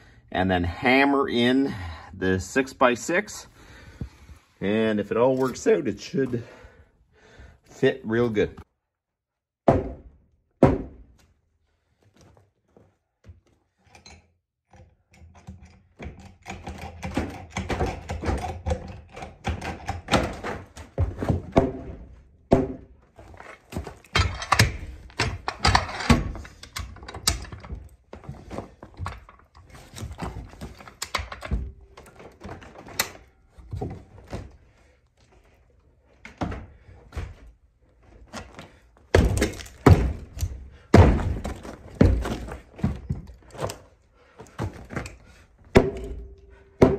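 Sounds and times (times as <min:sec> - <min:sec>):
sledgehammer knocking timber: 0:09.6 - 0:11.1, 0:20.1 - 0:22.9, 0:39.1 - 0:43.1, 0:45.7 - 0:46.9
jack clunking and ratcheting: 0:24.0 - 0:33.4.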